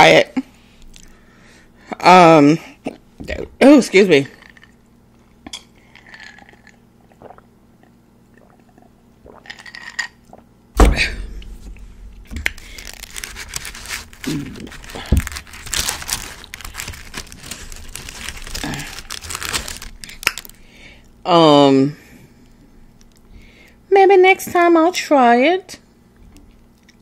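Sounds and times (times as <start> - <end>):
loud thud: 10.8 - 13.4
wrapping crinkling and tearing: 12.2 - 20.6.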